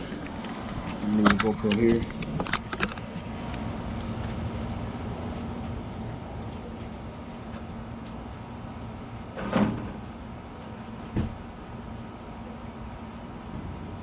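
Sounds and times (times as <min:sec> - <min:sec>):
loud thump: 0:11.1 - 0:11.4.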